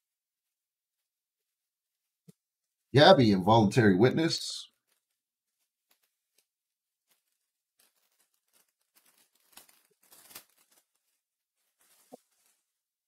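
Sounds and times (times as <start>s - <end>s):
trading cards rustling and crinkling: 4.7s - 12.8s.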